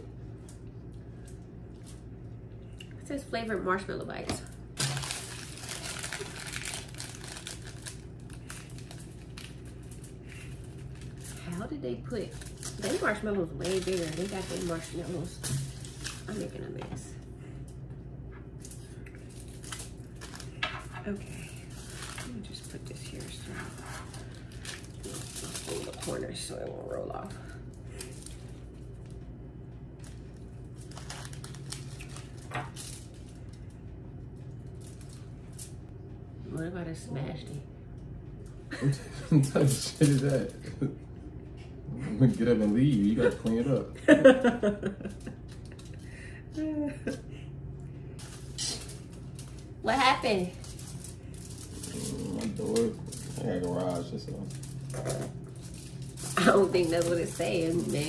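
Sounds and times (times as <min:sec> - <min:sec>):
steady low hum: 0:00.0 - 0:58.0
hands handling candy pieces: 0:04.8 - 0:11.5
plastic snack bag crinkling: 0:04.8 - 0:16.6, 0:18.6 - 0:29.2, 0:30.0 - 0:33.8, 0:34.6 - 0:35.8, 0:39.6 - 0:40.6, 0:42.3 - 0:43.8, 0:48.2 - 0:58.0.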